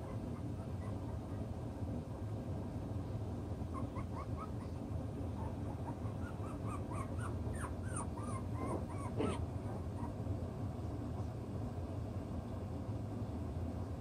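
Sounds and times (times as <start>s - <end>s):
puppy yelp: 0.0s - 1.5s, 3.7s - 4.8s, 5.4s - 10.2s
puppies whimpering: 0.0s - 1.6s, 3.7s - 4.8s, 5.4s - 10.2s.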